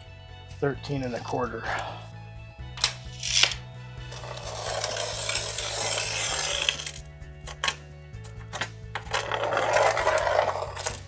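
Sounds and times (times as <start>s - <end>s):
background music with bass line: 0.0s - 11.0s
glass cutter scratching glass: 4.2s - 7.0s.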